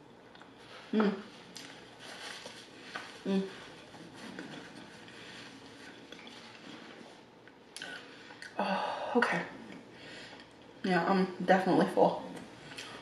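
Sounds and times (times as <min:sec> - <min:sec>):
person chewing: 0:01.4 - 0:08.6.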